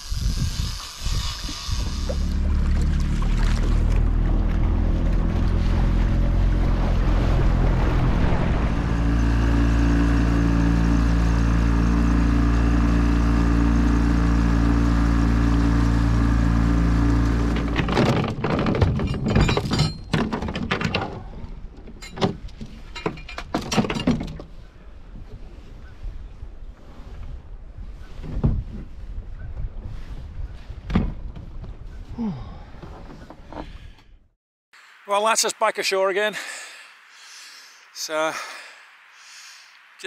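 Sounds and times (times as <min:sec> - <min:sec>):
outboard motor running: 0:00.0 - 0:21.8
irregular knocks and clatters: 0:17.4 - 0:24.5.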